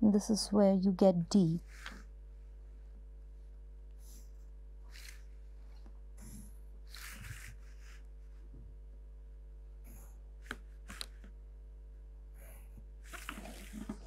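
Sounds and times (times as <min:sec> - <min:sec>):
low electrical hum: 0:00.0 - 0:14.0
pencil scratching on paper: 0:06.9 - 0:08.0.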